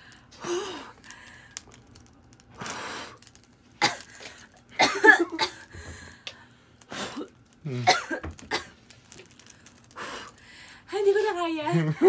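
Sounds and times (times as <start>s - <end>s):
woman coughing: 4.8s - 5.7s, 7.7s - 8.7s.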